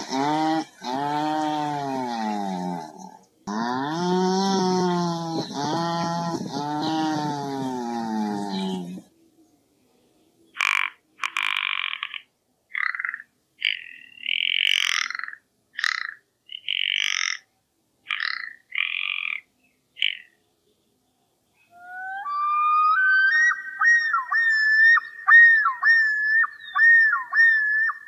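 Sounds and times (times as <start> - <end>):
bird dry rough croaks: 0.0 - 9.1, 10.5 - 20.4
loon whistled call: 21.7 - 28.0.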